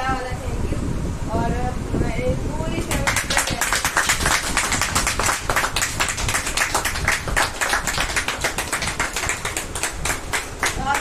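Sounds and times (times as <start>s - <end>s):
people clapping: 2.9s - 11.0s.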